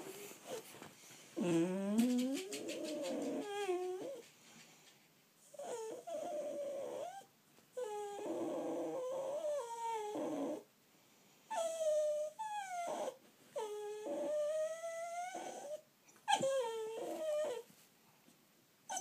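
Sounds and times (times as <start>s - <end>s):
dog whining: 1.4s - 4.3s, 5.5s - 10.7s, 11.5s - 17.7s.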